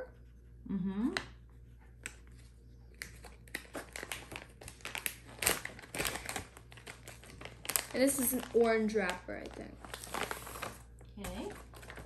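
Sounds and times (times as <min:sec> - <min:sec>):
plastic packaging crinkling: 0:03.0 - 0:12.0.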